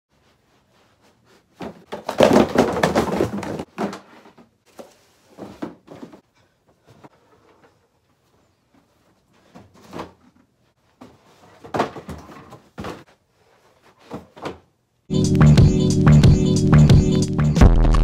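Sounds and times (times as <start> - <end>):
cardboard boxes knocking and scraping: 1.6 - 6.2, 11.0 - 13.2.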